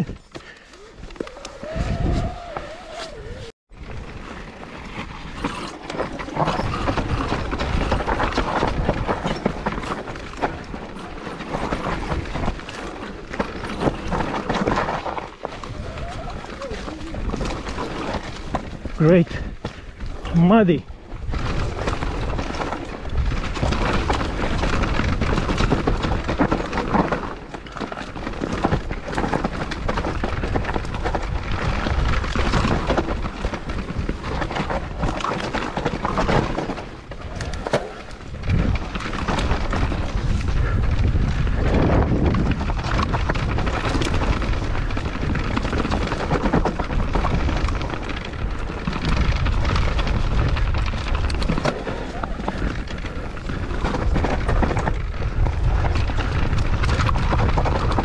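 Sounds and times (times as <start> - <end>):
wind buffeting microphone: 0.0 - 5.6, 6.2 - 27.0, 27.6 - 58.0
bike rattling and knocking: 0.0 - 58.0
tyres rolling over dirt: 0.0 - 58.0.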